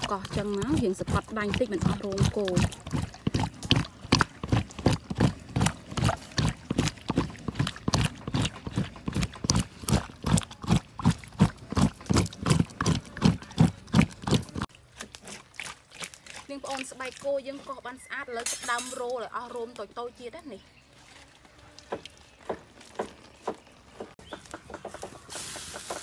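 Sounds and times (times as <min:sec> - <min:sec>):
metal tool scraping wet hide: 0:00.0 - 0:19.4.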